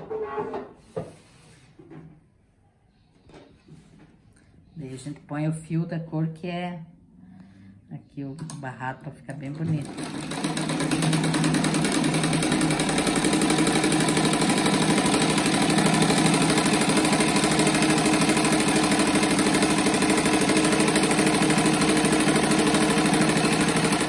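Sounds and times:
sewing machine running: 9.6 - 24.0.

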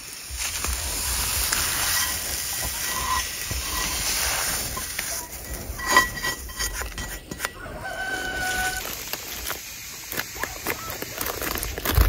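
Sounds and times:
steady hiss: 0.0 - 12.0
metal utensil scraping pan: 0.5 - 8.8.

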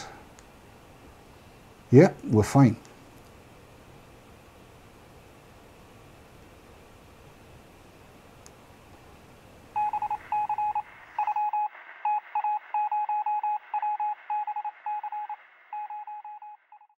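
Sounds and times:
faint room hiss: 0.0 - 16.6
short electronic beeps: 9.8 - 16.9.

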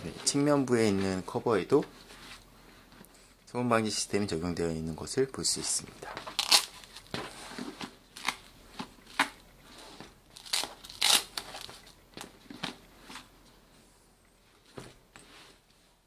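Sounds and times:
hook-and-loop rasping rips: 6.3 - 7.1, 10.3 - 11.7.

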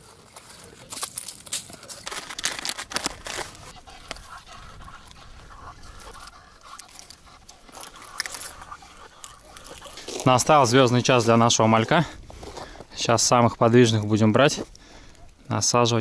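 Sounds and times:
plastic bag crinkling: 0.5 - 4.2
ice scoop scraping ice chips: 2.0 - 3.7.

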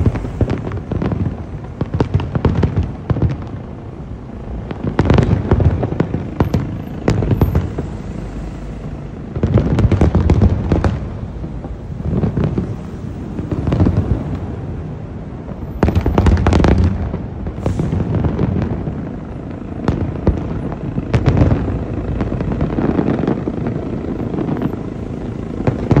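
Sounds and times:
fireworks bangs and crackles: 0.0 - 26.0.

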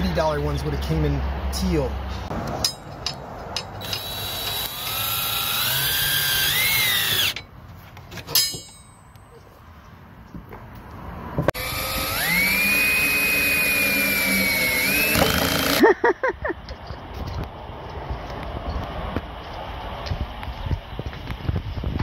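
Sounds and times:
cordless drill motor whine: 3.8 - 7.4, 11.6 - 15.8.

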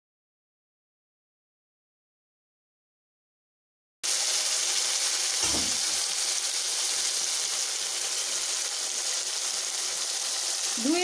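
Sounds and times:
fish frying in hot oil: 4.0 - 11.0.

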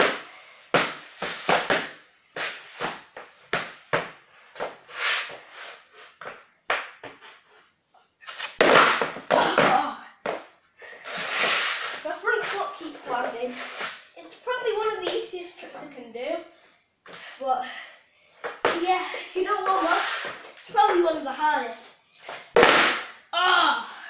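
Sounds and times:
board scraping slide: 4.9 - 6.1, 11.0 - 12.6, 19.8 - 20.5.

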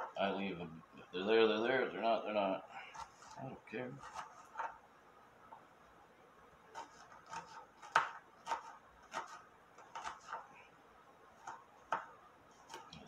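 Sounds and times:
knife chopping on cutting board: 2.9 - 3.4, 4.0 - 4.8, 6.7 - 10.5, 11.4 - 13.0.

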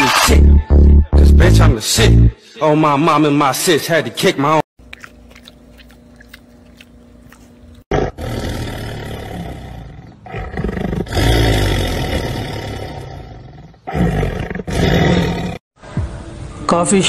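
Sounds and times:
panther snarling: 7.9 - 15.6.

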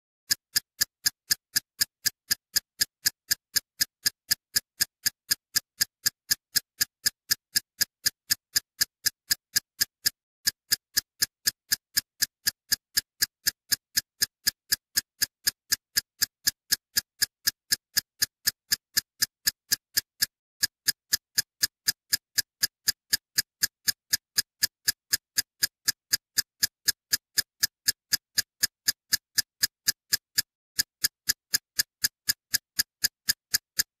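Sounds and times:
sharp ticking clicks: 0.3 - 34.0.

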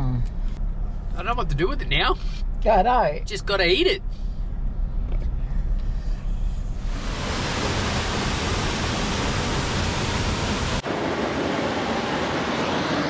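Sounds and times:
low rumble inside car: 0.0 - 10.8
waterfall rushing into pool: 6.9 - 11.2.

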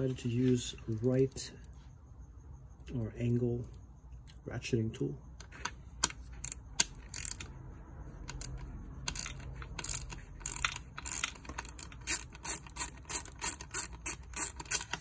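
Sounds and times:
ratchet wrench clicking: 5.4 - 7.6, 8.2 - 15.0.

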